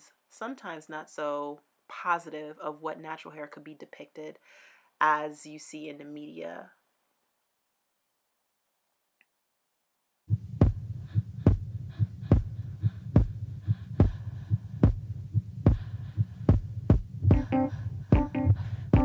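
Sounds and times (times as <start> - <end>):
low regular thudding beat: 10.3 - 19.0.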